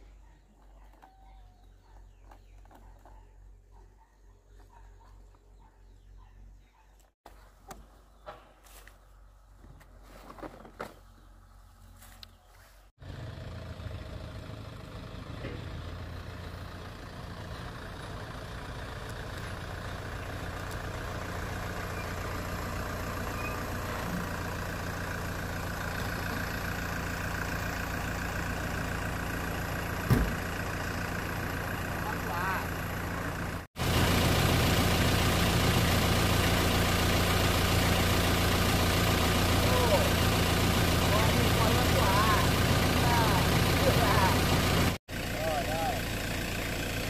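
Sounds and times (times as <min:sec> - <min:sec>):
engine running steadily: 0:13.0 - 0:47.0
sharp knock: 0:30.1 - 0:30.4.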